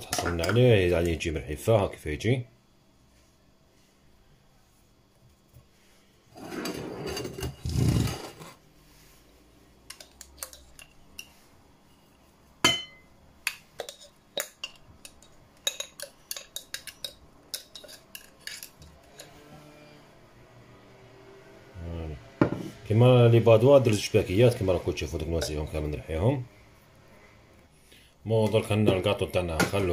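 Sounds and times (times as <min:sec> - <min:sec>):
rough scraping and rustling: 0:06.3 - 0:09.2.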